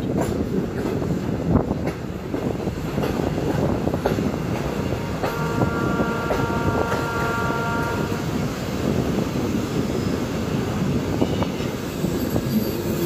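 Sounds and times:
wheels clacking over rail joints: 0.0 - 7.4
train rumble: 0.0 - 13.0
wind rush: 0.0 - 13.0.

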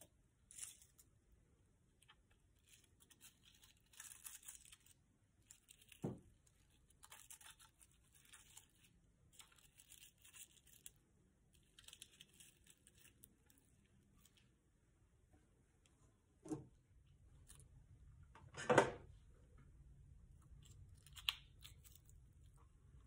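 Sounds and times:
dried flowers and wax crackling: 0.0 - 14.8.

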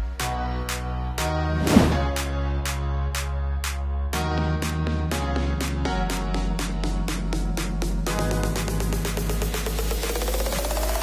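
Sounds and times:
deep bass line: 1.3 - 2.7
electronic music with steady beat: 5.8 - 11.0.

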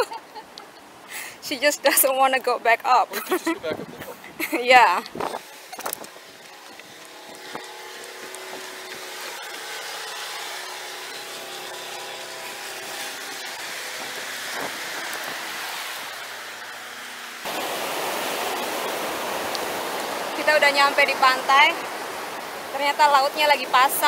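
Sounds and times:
ocean surf breaking: 12.6 - 24.0.

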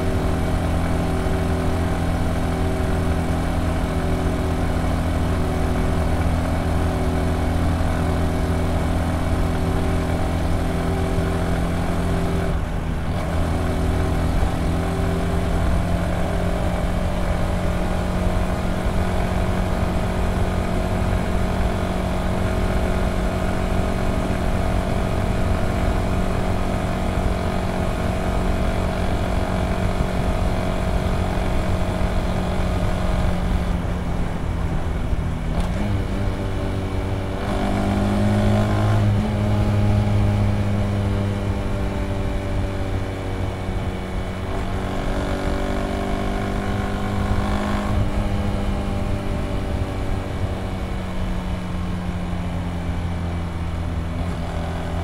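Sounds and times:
motorcycle engine cruising: 0.0 - 55.0.

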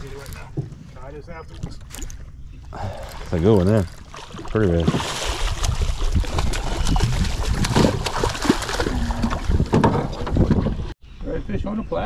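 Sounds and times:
wind buffeting microphone: 2.8 - 11.0
fish splashing at surface: 3.0 - 9.5.

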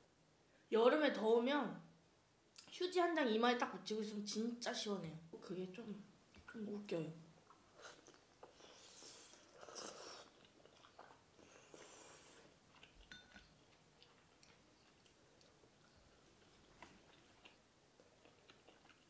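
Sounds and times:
quiet chewing: 7.4 - 19.0
noodle slurping: 7.8 - 15.4.

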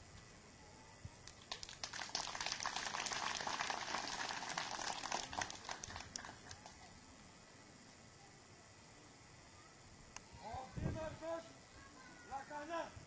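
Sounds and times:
crowd applauding: 1.3 - 6.9.

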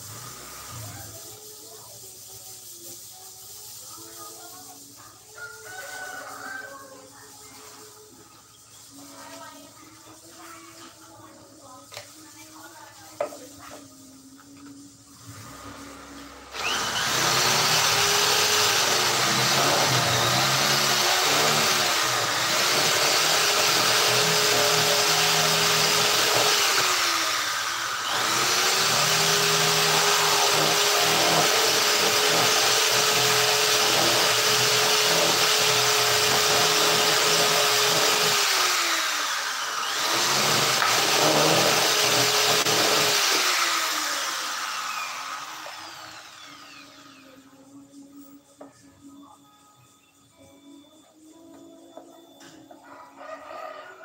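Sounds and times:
power tool motor whine: 15.2 - 47.4.

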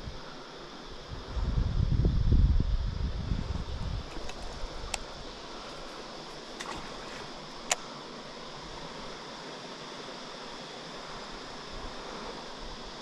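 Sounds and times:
river background hiss: 0.0 - 13.0
faint ticks: 4.0 - 7.9.

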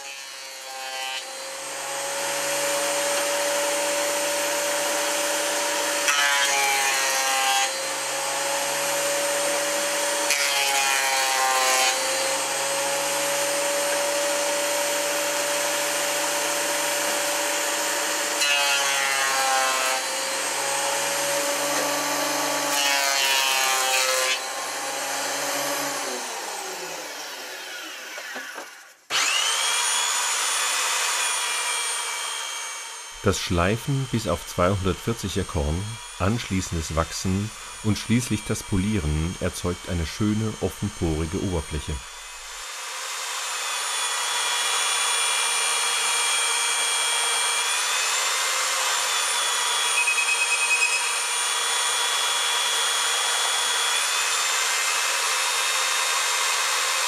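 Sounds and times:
planer cutting wood: 0.0 - 57.0
thickness planer running: 20.0 - 47.8.

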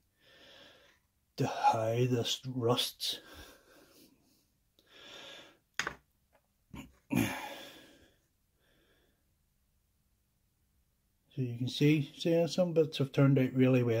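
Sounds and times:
man breathing: 0.0 - 1.1, 3.2 - 5.8, 7.1 - 9.3
plastic model parts knocking: 5.8 - 6.1.

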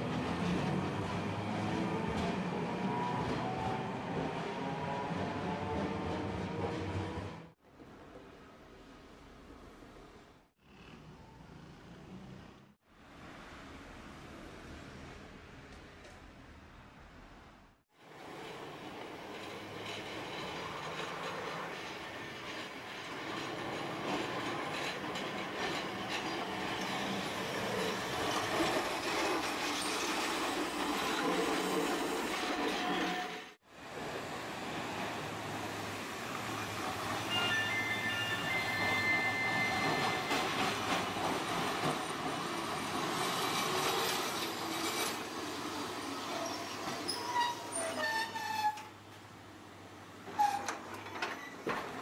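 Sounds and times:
streetcar running on track: 0.0 - 8.4, 18.1 - 48.7
wheels clacking on rails: 18.1 - 49.2, 50.2 - 52.0.

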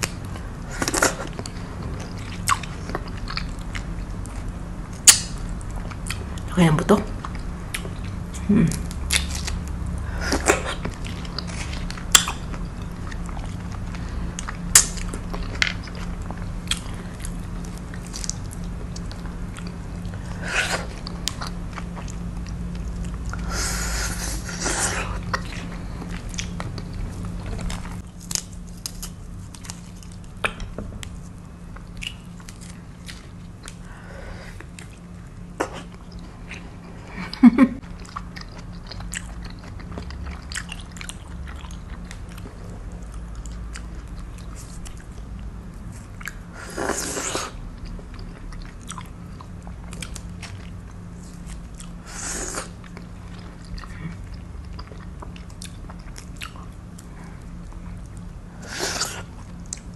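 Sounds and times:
low steady hum: 0.0 - 59.9
person chewing juicy fruit: 0.0 - 59.9.

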